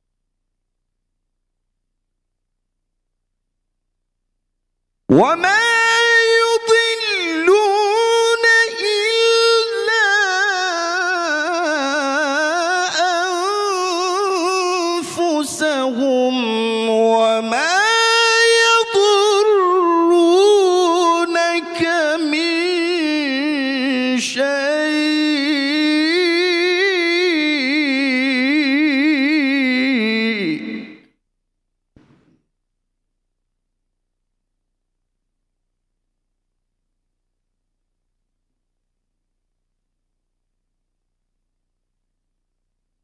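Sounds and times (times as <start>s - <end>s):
man reciting through microphone: 5.1s - 31.1s.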